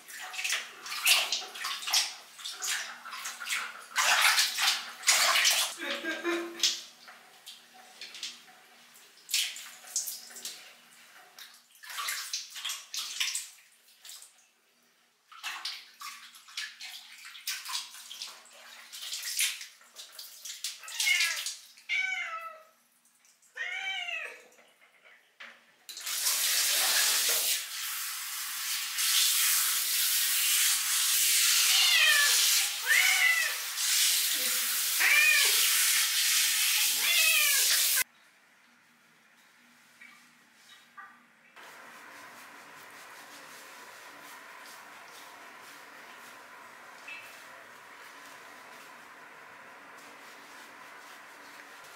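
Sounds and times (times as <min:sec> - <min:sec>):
water splashing in bucket: 0:00.0 - 0:08.4, 0:09.1 - 0:14.4, 0:15.3 - 0:21.9
cat meowing: 0:20.9 - 0:22.7, 0:23.6 - 0:24.4, 0:31.6 - 0:33.6, 0:35.0 - 0:35.6, 0:36.9 - 0:37.8
shower head spraying: 0:26.0 - 0:38.0.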